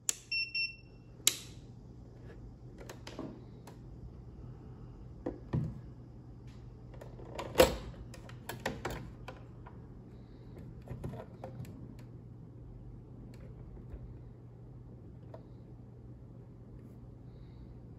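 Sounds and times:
low steady hum: 0.0s - 17.9s.

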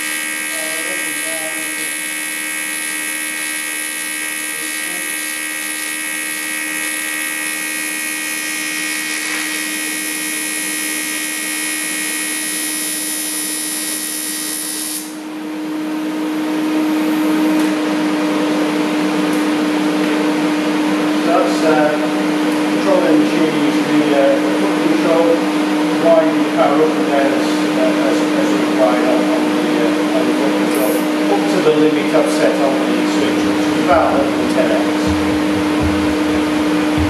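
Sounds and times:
welding arc buzzing: 0.0s - 18.1s, 28.4s - 37.0s
steady hum and hiss: 15.0s - 37.0s.

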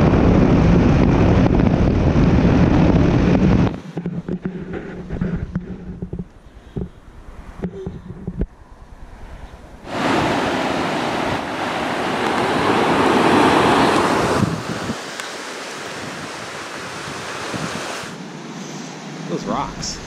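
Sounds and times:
wind rumble on microphone: 0.0s - 18.3s
ocean surf breaking: 8.6s - 20.0s.

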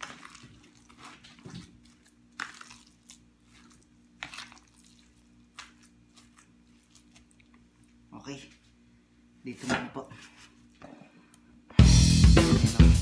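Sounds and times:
soft squishes of meat mixing: 0.0s - 8.9s
low steady hum: 0.0s - 11.8s.

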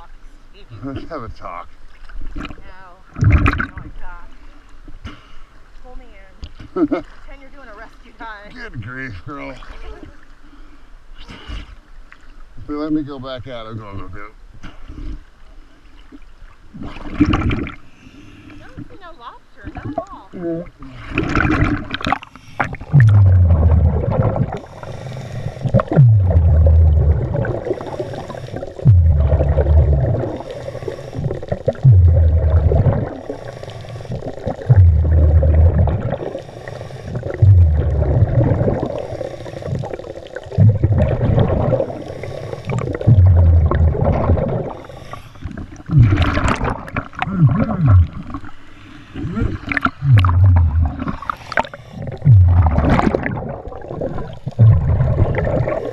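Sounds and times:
exhaled bubbles rumbling underwater: 1.9s - 4.4s, 14.8s - 19.0s, 19.6s - 55.9s
scuba regulator hissing inhale: 17.8s - 18.6s, 22.2s - 22.8s, 24.6s - 25.8s, 27.6s - 28.8s, 30.2s - 31.5s, 33.1s - 34.4s, 36.2s - 37.4s, 38.8s - 40.1s, 41.8s - 43.1s, 44.7s - 45.6s, 51.2s - 52.2s.

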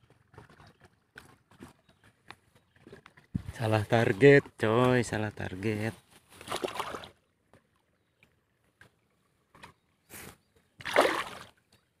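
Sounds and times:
water splashing: 6.4s - 7.2s, 10.8s - 11.7s.

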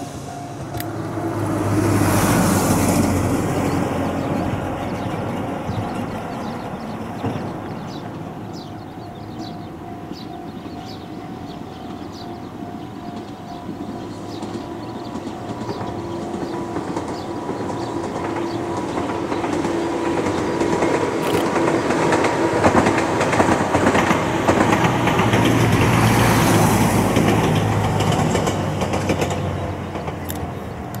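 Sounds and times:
electric train passing: 0.0s - 31.0s
wheels clattering over rail joints: 11.7s - 31.0s.

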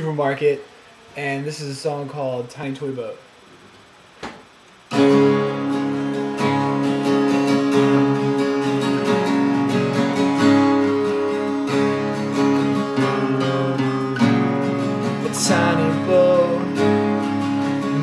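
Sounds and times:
acoustic guitars strumming: 4.9s - 18.0s.

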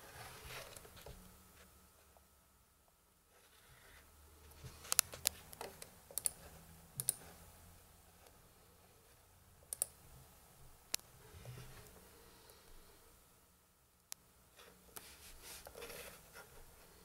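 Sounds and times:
laptop keys clicking: 4.9s - 6.4s, 7.0s - 7.2s.

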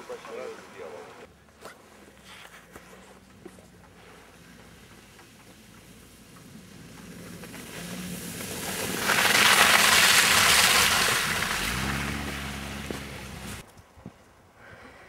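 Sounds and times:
car engine steady revs: 0.3s - 13.6s
car driving through slushy snow: 3.0s - 13.6s.

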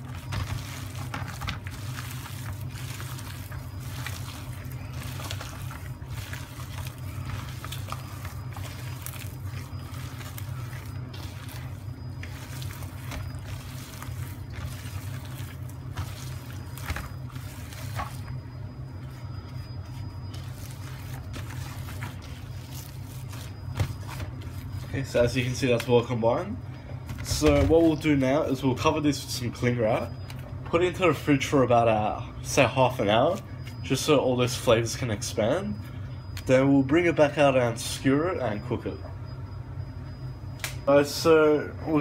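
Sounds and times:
meat squelching and slapping: 0.0s - 26.1s
steady low hum: 0.0s - 42.0s.

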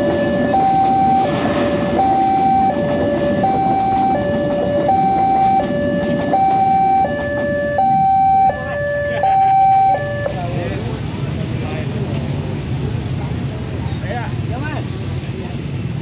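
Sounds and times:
two-tone crossing alarm: 0.0s - 10.5s
train coaches rumbling on rails: 0.0s - 16.0s.

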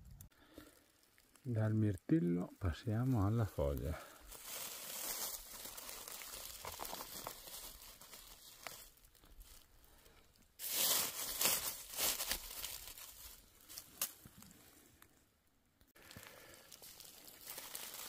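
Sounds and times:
dry leaves rustling and crackling: 2.7s - 14.6s, 16.0s - 18.0s.

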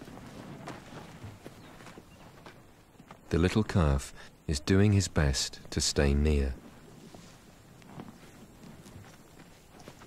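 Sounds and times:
elephants feeding soft thuds: 6.6s - 10.0s.

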